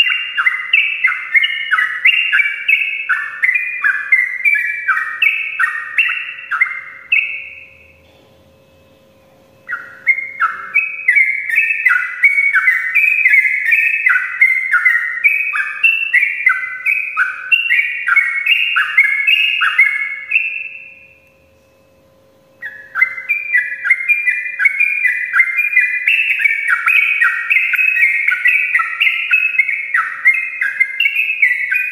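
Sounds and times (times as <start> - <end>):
faint steady hum: 0.0 - 31.9.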